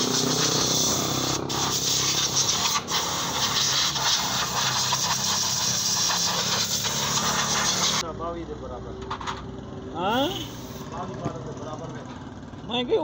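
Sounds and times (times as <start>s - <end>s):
spray gun hissing: 0.0s - 8.0s, 10.3s - 10.9s.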